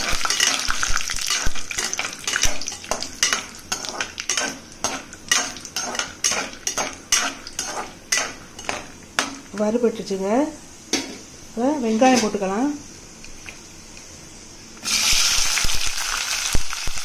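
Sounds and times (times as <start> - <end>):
metal spoon scraping a pot: 0.0 - 8.9
oil sizzling: 0.0 - 17.0.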